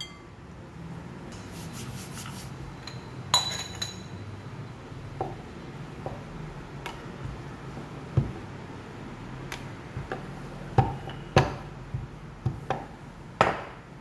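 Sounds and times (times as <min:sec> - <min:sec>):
sharp ringing clink: 0:00.0 - 0:00.3
rolling pin on wooden board: 0:05.2 - 0:08.5, 0:09.5 - 0:13.8.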